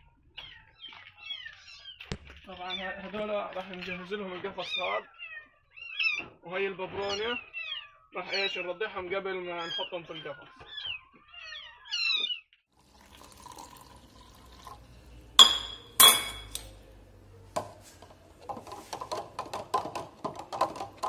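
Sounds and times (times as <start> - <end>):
kittens meowing: 0.3 - 8.7, 9.5 - 12.5
spoon clinking in plastic jar: 15.4 - 16.8.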